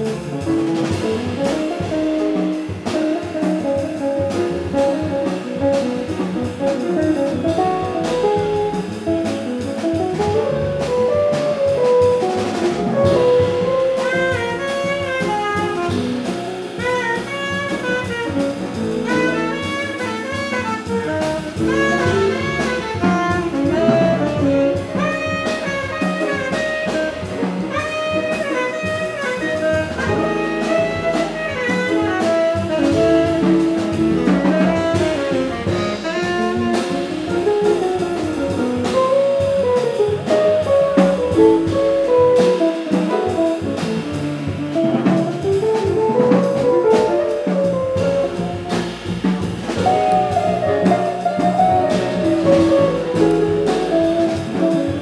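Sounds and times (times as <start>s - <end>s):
drum kit cymbals: 0.0s - 55.0s
jazz guitar: 0.0s - 55.0s
piano: 0.0s - 55.0s
upright bass: 0.0s - 55.0s
tenor saxophone melody: 11.4s - 55.0s.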